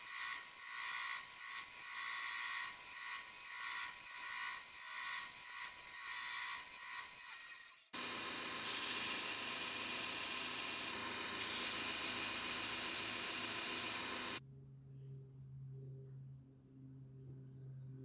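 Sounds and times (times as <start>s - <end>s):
belt grinder sanding wood: 0.0s - 14.4s.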